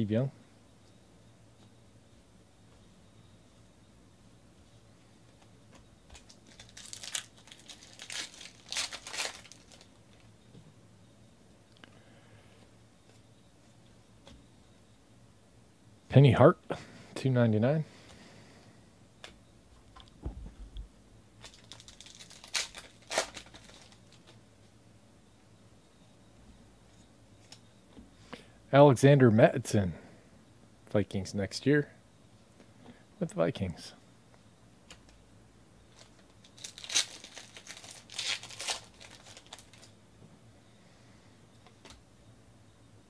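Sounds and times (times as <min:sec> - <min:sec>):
foil wrapper crinkling and ripping: 0:06.2 - 0:10.2, 0:21.4 - 0:24.4, 0:35.9 - 0:39.9.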